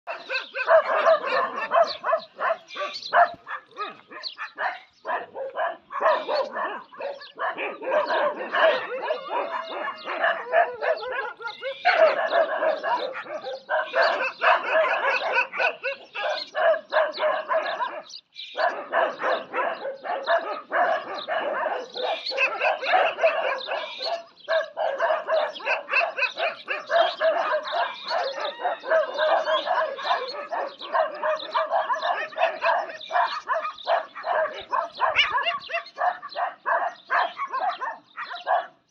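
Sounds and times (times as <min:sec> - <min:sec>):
dogs barking and yelping: 0:00.0 - 0:38.9.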